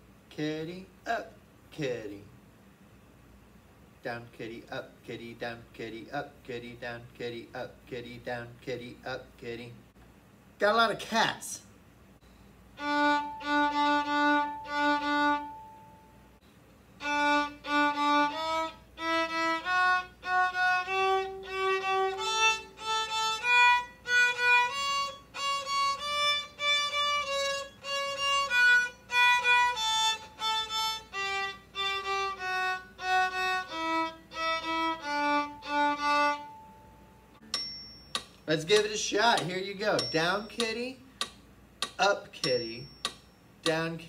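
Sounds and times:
solo violin tune: 0:12.8 - 0:16.2, 0:17.0 - 0:37.4.

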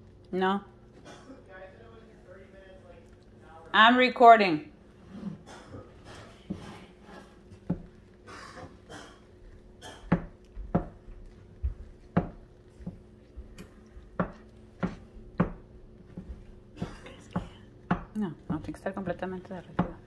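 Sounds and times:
utensil knocking against a pot: 0:09.8 - 0:11.0, 0:12.1 - 0:13.0, 0:14.1 - 0:15.6, 0:16.2 - 0:18.8, 0:19.7 - 0:20.0.

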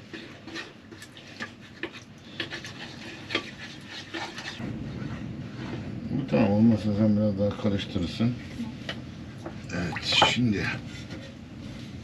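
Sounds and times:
spoon stirring sauce in a bowl: 0:00.0 - 0:04.6
low rumble: 0:04.6 - 0:09.8.

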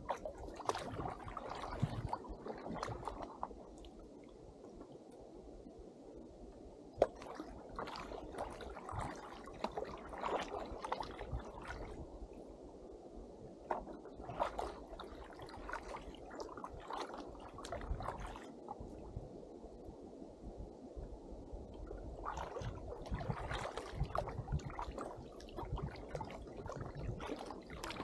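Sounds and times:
kayak paddle splashing in water: 0:00.0 - 0:03.6, 0:07.0 - 0:12.0, 0:13.6 - 0:18.6, 0:22.2 - 0:28.0.

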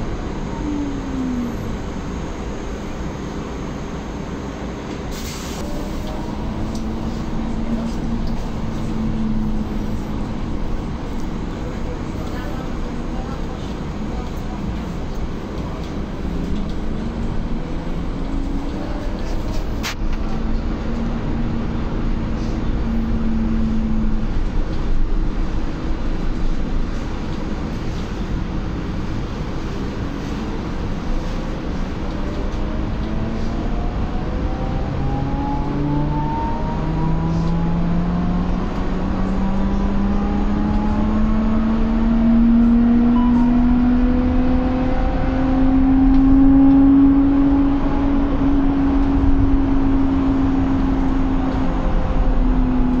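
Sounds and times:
bus road and tyre rumble: 0:00.0 - 0:53.0
brief hiss: 0:05.1 - 0:05.7.

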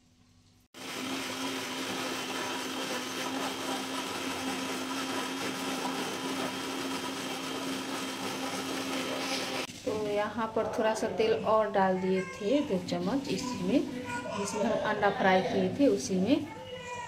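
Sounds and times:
mixer grinder running: 0:00.8 - 0:09.7.

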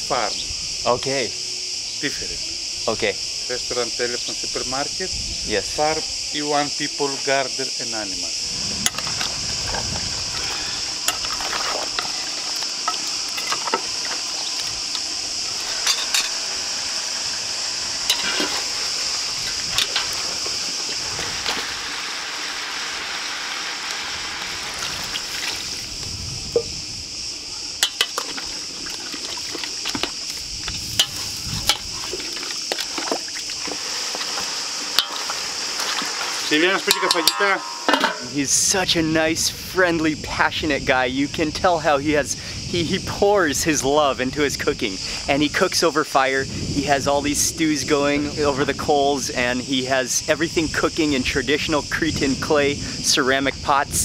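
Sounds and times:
insects droning: 0:00.0 - 0:54.0
metal spoon scraping a pan: 0:15.5 - 0:17.1, 0:18.0 - 0:18.8, 0:34.0 - 0:38.4
metal clinks of pans and lids: 0:15.7 - 0:16.4, 0:35.0 - 0:35.3, 0:36.7 - 0:38.4.

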